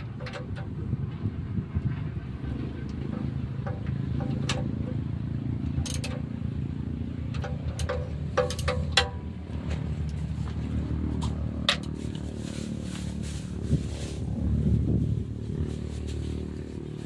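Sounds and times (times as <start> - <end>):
diesel engine running: 0.0 - 17.0
sharp metallic clicks: 5.6 - 6.6, 7.2 - 9.3.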